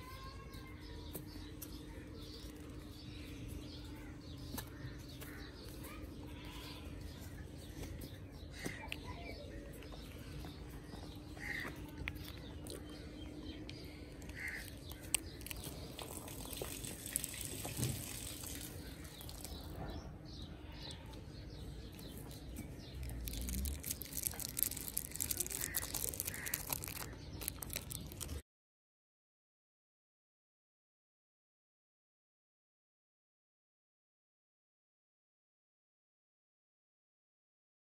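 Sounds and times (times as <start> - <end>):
rustling and clicking of handling: 21.8 - 28.4.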